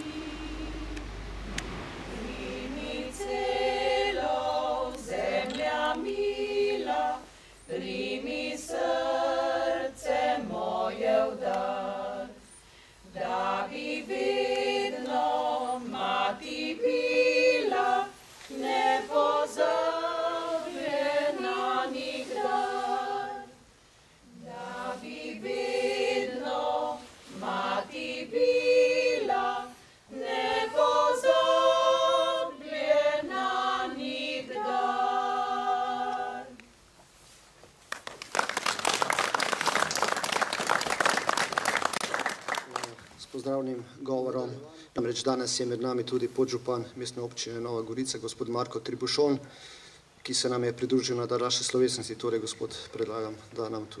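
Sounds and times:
women's choir singing a cappella: 0.0s - 36.7s.

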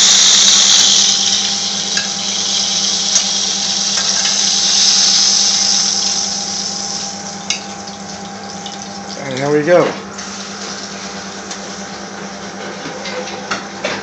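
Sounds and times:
oil sizzling in a frying pan: 0.0s - 9.1s.

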